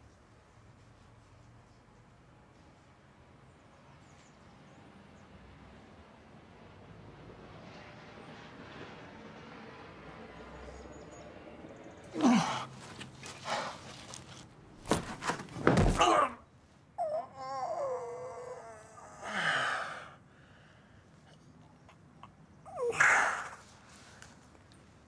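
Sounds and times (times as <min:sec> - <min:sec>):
wavering moan: 0:12.1 - 0:12.7, 0:17.0 - 0:20.2, 0:22.7 - 0:23.7
hard knocks: 0:14.8 - 0:16.2
body hitting the ground: 0:14.8 - 0:16.3.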